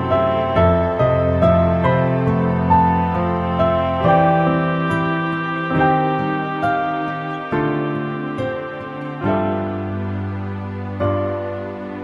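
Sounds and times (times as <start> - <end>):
gentle slow melody: 0.0 - 12.0
sustained low accompaniment: 0.0 - 12.0.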